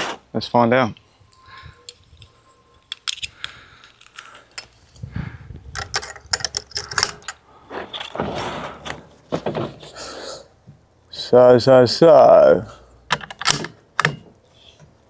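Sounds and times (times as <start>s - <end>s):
rustling movement: 1.0s - 10.1s
rifle handling clicks and rattles: 1.9s - 4.8s, 5.7s - 7.4s, 13.1s - 14.2s.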